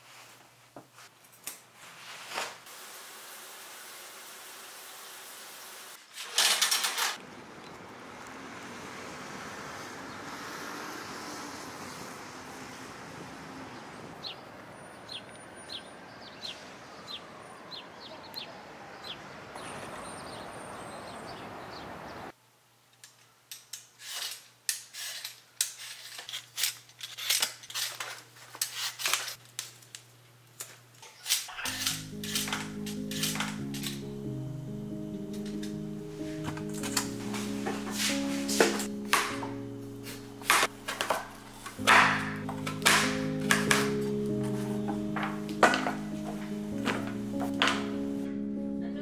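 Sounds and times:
distant traffic: 7.2 - 22.3, 31.6 - 48.8
bird chirping: 14.2 - 22.3
paper bag rustling: 36.2 - 47.9.

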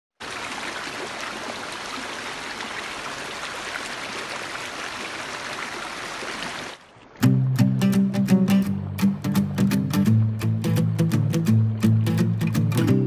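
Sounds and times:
stream flowing over rocks: 0.2 - 7.5.

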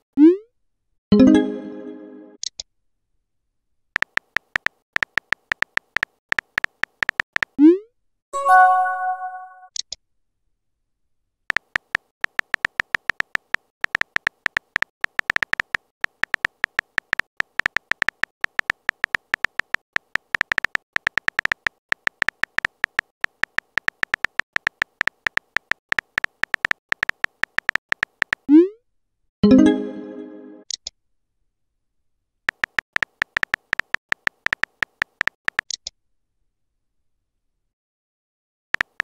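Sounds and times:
phone keyboard typing clicks: 4.0 - 7.6, 11.5 - 28.5, 32.5 - 35.8, 38.8 - 39.0.

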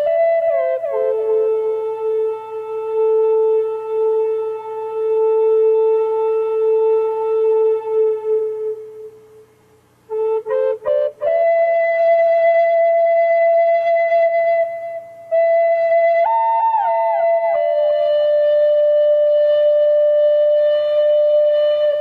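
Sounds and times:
slow solo flute melody: 0.0 - 22.0.

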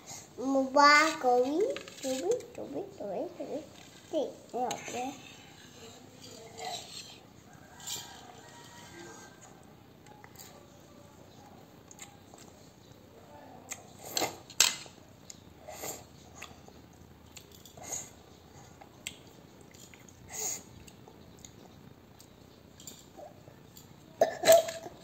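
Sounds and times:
chewing sounds: 18.6 - 22.4.

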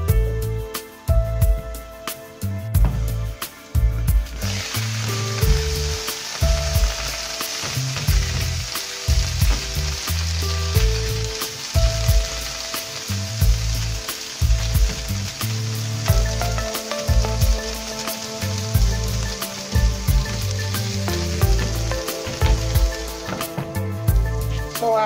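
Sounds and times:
background music with bass beat: 0.0 - 25.0
vegetables sizzling in oil: 3.6 - 25.0.

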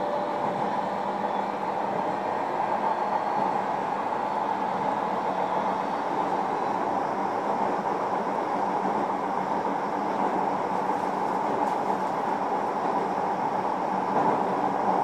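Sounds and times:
train wheels rumbling: 0.0 - 15.0.

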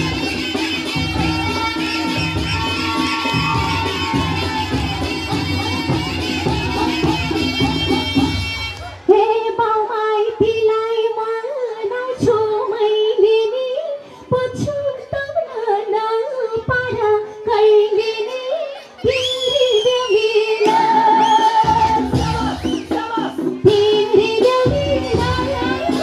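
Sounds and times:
woman singing into a microphone: 9.1 - 26.0.

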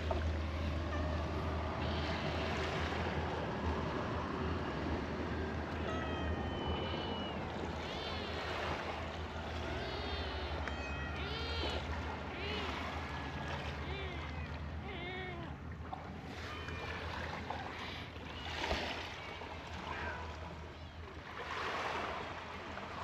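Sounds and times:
steady low rumble: 0.0 - 16.3
cat meowing: 5.8 - 8.9, 9.7 - 15.6.

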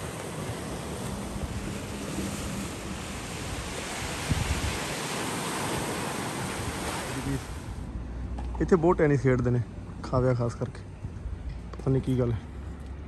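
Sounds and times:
surf breaking on rocky shore: 0.0 - 7.9
wind buffeting microphone: 0.0 - 8.0.

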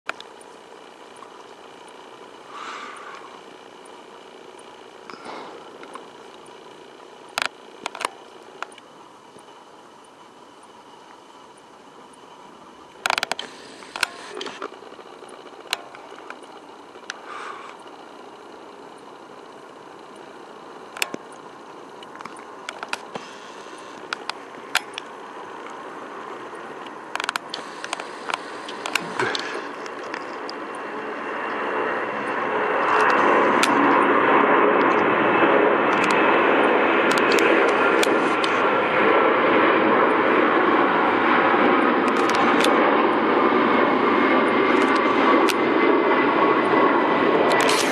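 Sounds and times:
jet engines at takeoff: 0.1 - 47.9
sharp clicks: 4.6 - 12.2, 13.0 - 19.1, 20.9 - 25.8, 26.8 - 31.6, 35.9 - 36.3, 37.1 - 38.6, 42.1 - 42.8, 47.5 - 47.9.

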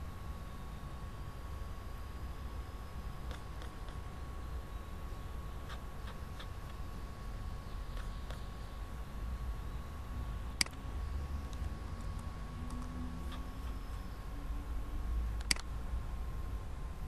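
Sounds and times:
low hum: 0.0 - 17.0
computer mouse clicks: 3.2 - 4.0, 7.9 - 8.5, 10.6 - 10.8, 11.5 - 14.0, 15.4 - 15.7.

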